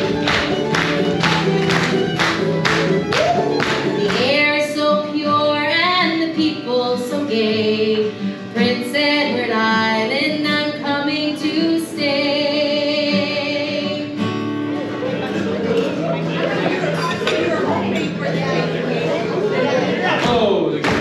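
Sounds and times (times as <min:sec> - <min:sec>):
audience clapping in time: 0:00.0 - 0:04.4, 0:20.2 - 0:21.0
instrumental backing: 0:00.0 - 0:21.0
person singing with vibrato: 0:03.2 - 0:14.2.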